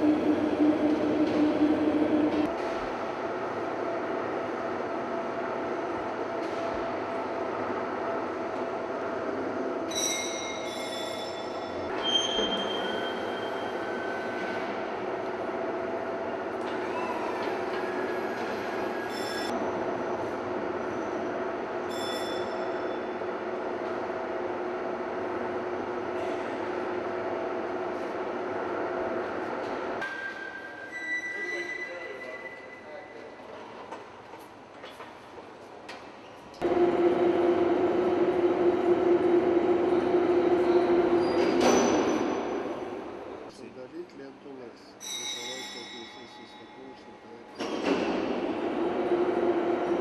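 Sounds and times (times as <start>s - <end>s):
electric hoist humming: 0.0s - 2.5s, 36.6s - 43.6s, 47.7s - 50.0s
mechanical hum: 0.0s - 50.0s
high-pitched squeaks: 45.0s - 46.9s.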